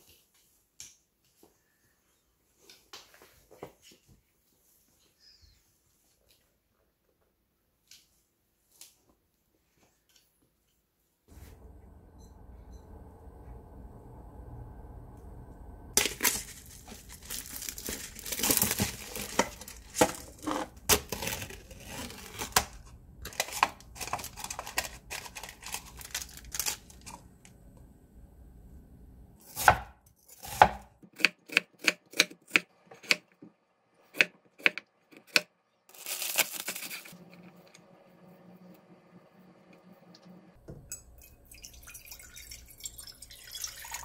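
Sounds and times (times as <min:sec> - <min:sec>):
packaging tearing and crinkling: 0:16.0 - 0:27.2, 0:35.9 - 0:37.2
rustling: 0:16.0 - 0:27.4.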